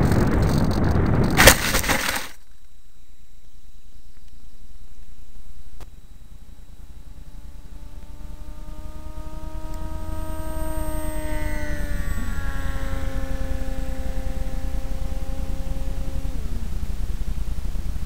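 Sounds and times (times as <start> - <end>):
model airplane propeller droning: 0.0 - 18.0.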